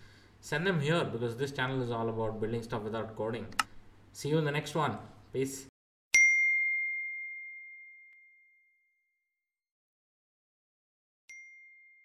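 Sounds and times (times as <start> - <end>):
bright ding: 6.2 - 9.0, 11.3 - 12.0.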